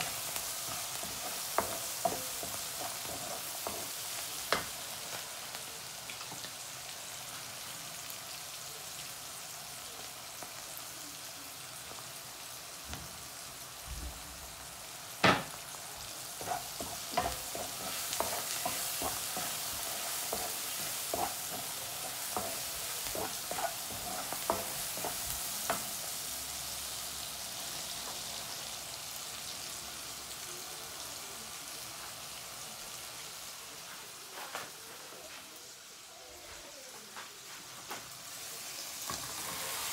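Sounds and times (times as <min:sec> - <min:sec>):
spoon scraping a pan: 0:00.0 - 0:05.2, 0:16.3 - 0:25.9, 0:39.0 - 0:39.9
prawns sizzling in a wok: 0:00.0 - 0:39.9
wooden spoon knocking on a pan: 0:15.2 - 0:15.6.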